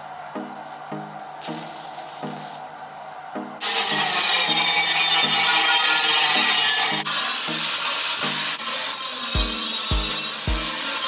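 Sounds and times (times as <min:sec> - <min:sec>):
background music with beat: 0:00.0 - 0:03.8, 0:06.0 - 0:11.0
grinder on steel pipe: 0:03.6 - 0:11.0.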